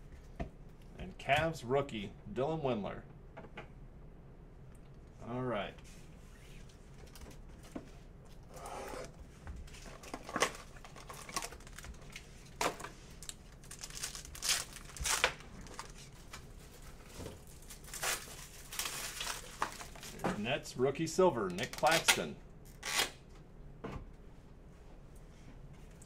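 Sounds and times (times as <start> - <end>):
plastic wrapper crinkling and tearing: 9.8 - 20.2, 21.6 - 23.2.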